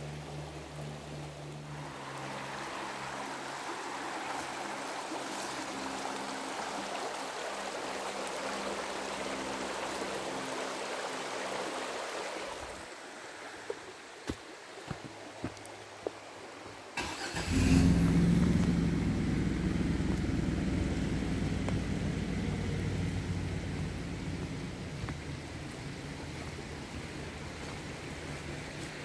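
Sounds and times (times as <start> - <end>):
vehicle engine starting and running: 17.0 - 26.2.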